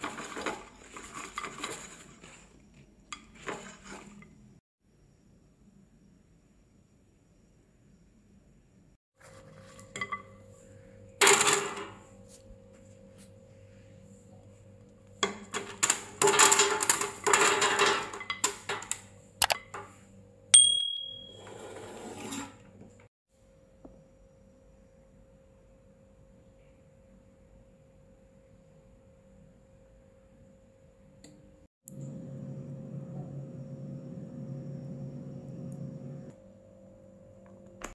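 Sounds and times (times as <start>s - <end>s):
air fryer fan whirring: 31.9s - 37.9s.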